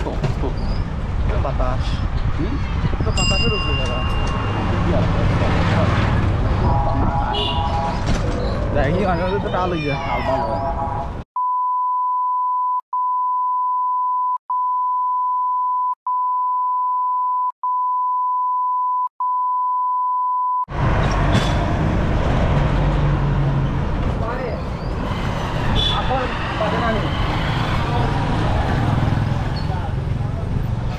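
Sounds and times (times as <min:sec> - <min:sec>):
traffic: 0:00.0 - 0:11.3, 0:20.7 - 0:30.9
voices: 0:03.0 - 0:11.2
high electronic beep tone: 0:11.4 - 0:20.7.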